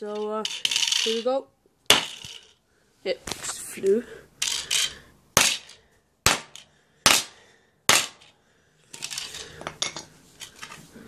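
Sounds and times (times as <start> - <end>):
hammer cracking a disc: 1.9 - 2.4, 5.4 - 8.3.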